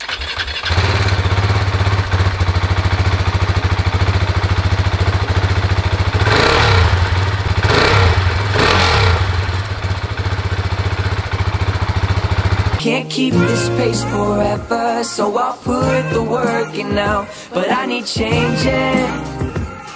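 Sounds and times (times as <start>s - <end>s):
engine throttle blips: 0.0s - 12.8s
motorcycle engine idling: 0.0s - 12.8s.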